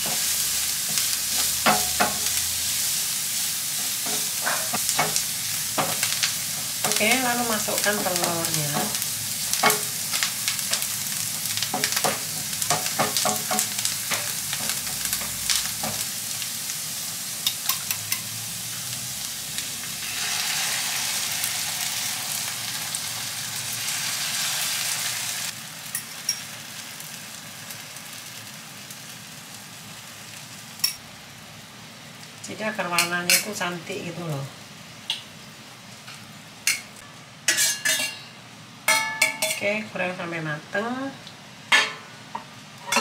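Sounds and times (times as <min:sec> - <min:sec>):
cabbage sizzling in a frying pan: 0:00.0 - 0:42.9
egg poured sizzling: 0:18.9 - 0:25.7.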